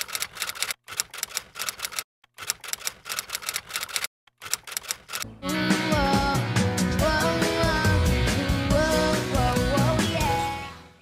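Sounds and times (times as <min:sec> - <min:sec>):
typewriter key clicks: 0:00.0 - 0:05.2.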